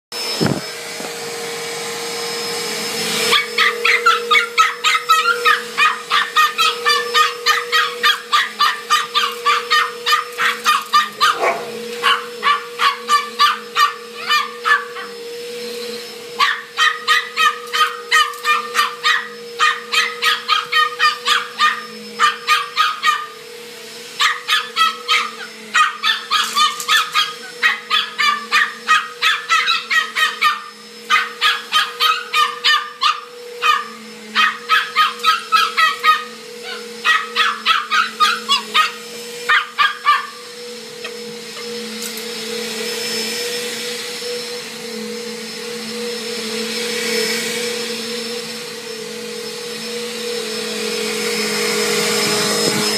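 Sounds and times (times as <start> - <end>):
vacuum cleaner motor humming: 0.1 - 52.9
small dog yapping: 3.3 - 15.2, 16.4 - 23.4, 24.2 - 40.4.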